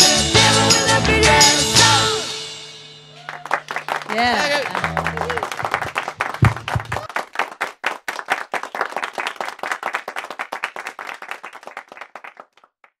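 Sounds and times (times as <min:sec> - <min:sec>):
audience clapping: 0:03.2 - 0:13.0.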